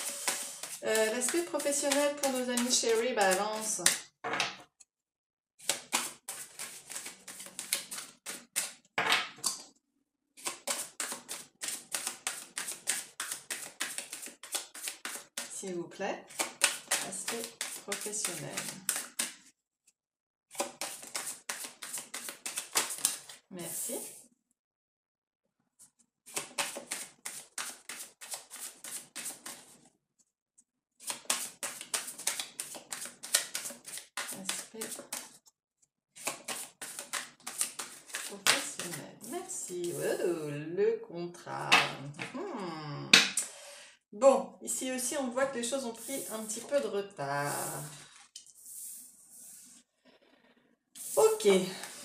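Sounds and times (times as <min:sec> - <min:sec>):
cards being shuffled: 0:00.0 - 0:04.0, 0:05.6 - 0:08.8, 0:10.4 - 0:15.5, 0:16.3 - 0:19.4, 0:20.5 - 0:23.8, 0:26.3 - 0:29.8, 0:31.0 - 0:35.4, 0:36.2 - 0:40.1, 0:45.9 - 0:46.8, 0:51.0 - 0:52.0.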